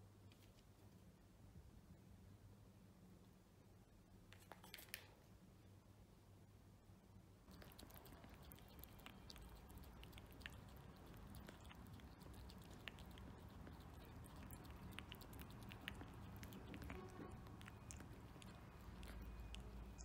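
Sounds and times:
cat licking food: 0:07.5 - 0:20.0.

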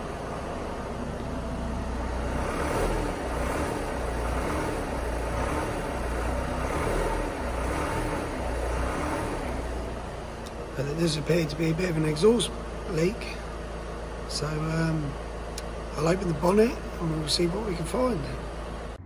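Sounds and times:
exhaust leak blowing: 0:00.0 - 0:18.8
diesel engine running: 0:00.0 - 0:19.0.

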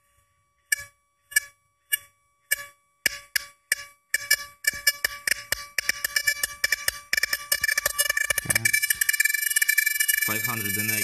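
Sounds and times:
electric coil humming: 0:07.2 - 0:11.0.

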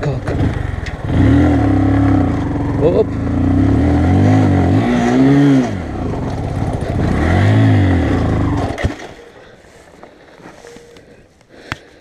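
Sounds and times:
motorcycle engine revving: 0:00.0 - 0:09.4.

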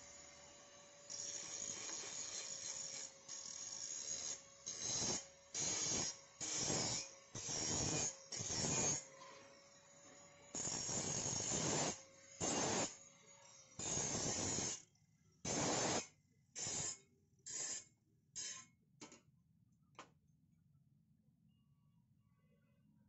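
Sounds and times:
angle grinder grinding metal: 0:01.1 - 0:09.9, 0:10.5 - 0:14.8, 0:15.5 - 0:16.0.

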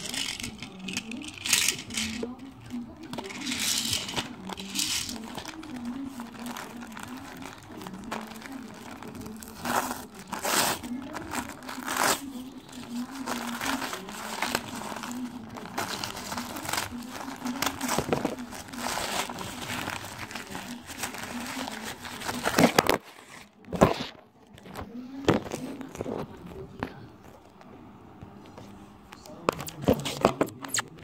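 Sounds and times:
paper tearing and crumpling: 0:03.1 - 0:24.1.

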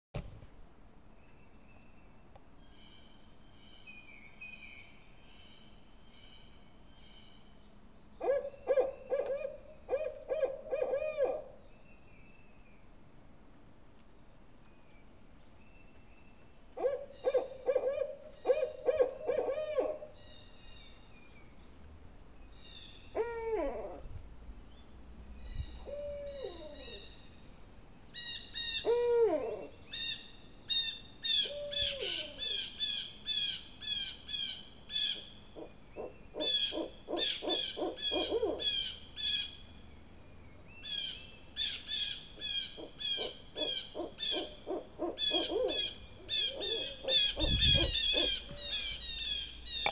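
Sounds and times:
higher sharp owl calls: 0:08.2 - 0:11.6, 0:16.8 - 0:20.4, 0:22.6 - 0:24.1, 0:25.6 - 0:27.2, 0:28.1 - 0:39.6, 0:40.8 - 0:49.9
owl hooting: 0:08.2 - 0:11.6, 0:16.8 - 0:20.2, 0:22.6 - 0:24.2, 0:25.6 - 0:27.2, 0:28.2 - 0:39.6, 0:40.8 - 0:49.9.

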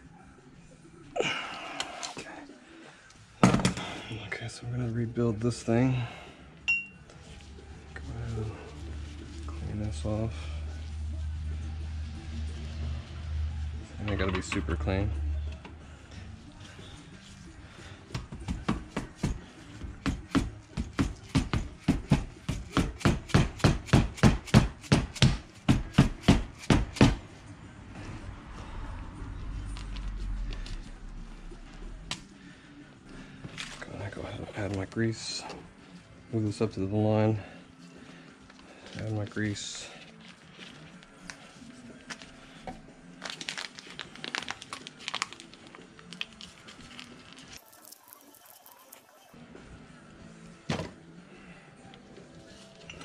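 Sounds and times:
foil packet crinkling: 0:43.2 - 0:49.4.

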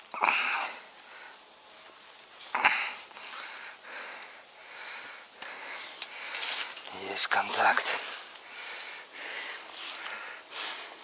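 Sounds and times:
rustling in dry grass: 0:00.0 - 0:11.0.

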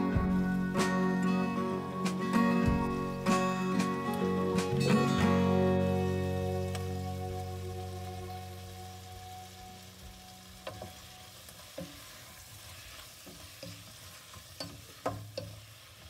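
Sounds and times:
vegetables sizzling: 0:00.0 - 0:16.0
spatula tapping and scraping pot: 0:13.2 - 0:15.6.

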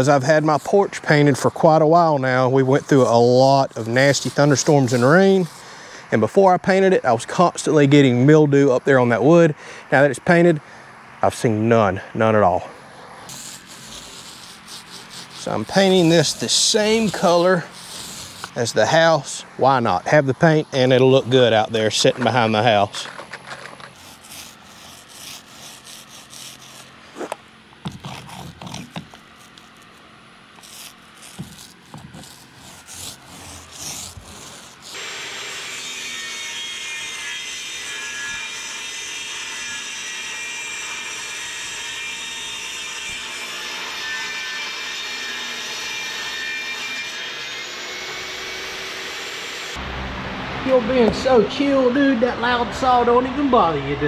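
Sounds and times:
paint roller rubbing over plywood: 0:00.0 - 0:05.7, 0:13.3 - 0:35.0
table saw cutting board: 0:13.3 - 0:20.0, 0:20.6 - 0:49.9.

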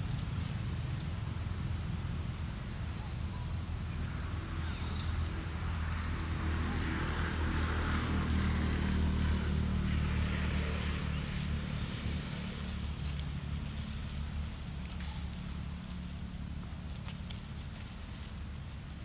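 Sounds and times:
vehicle engine hum: 0:00.0 - 0:19.0.

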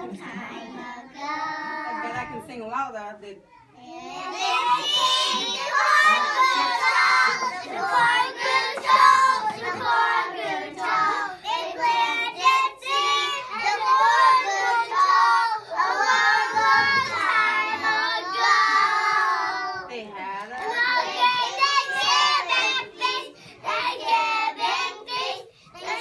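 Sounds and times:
young children singing together: 0:00.0 - 0:02.4, 0:03.8 - 0:19.9, 0:20.6 - 0:26.0.

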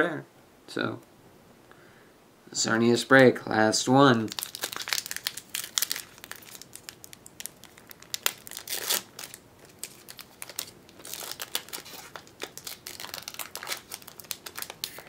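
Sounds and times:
foil wrapper crinkling and tearing: 0:04.2 - 0:15.0.

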